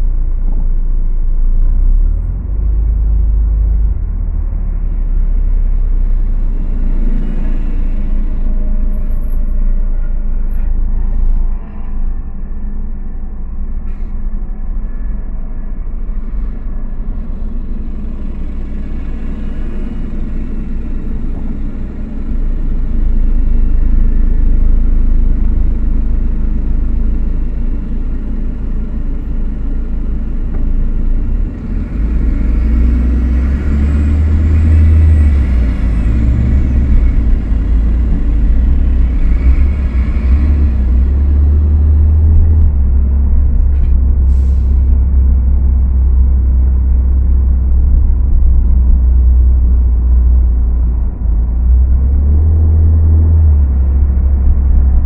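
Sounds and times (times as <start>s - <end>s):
car engine and road rumble: 0.0s - 55.0s
rushing road hiss: 43.8s - 45.0s.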